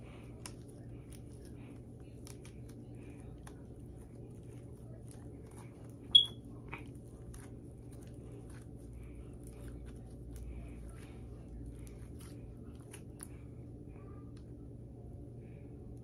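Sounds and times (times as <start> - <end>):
sharp high squeak: 6.1 - 6.4.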